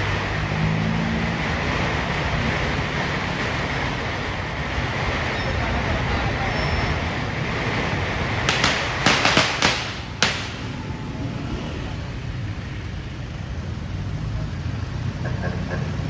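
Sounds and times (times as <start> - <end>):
street traffic hum: 0.0 - 16.0
firecracker cracks: 8.4 - 11.0.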